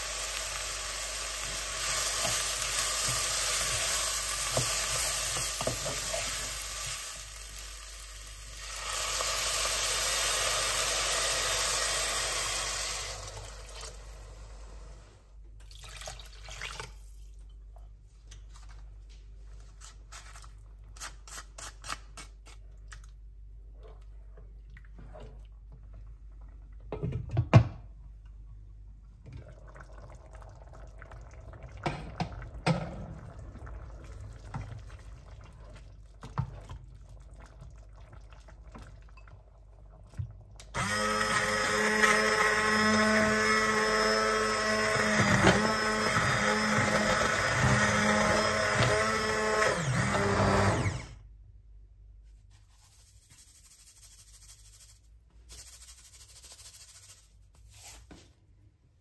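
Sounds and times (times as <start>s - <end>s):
immersion blender running: 40.8s - 51.2s.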